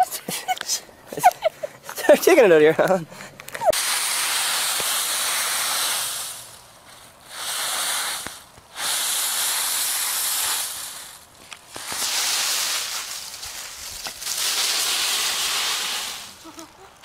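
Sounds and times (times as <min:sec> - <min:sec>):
dry leaves rustling and crunching: 0:09.6 - 0:17.0.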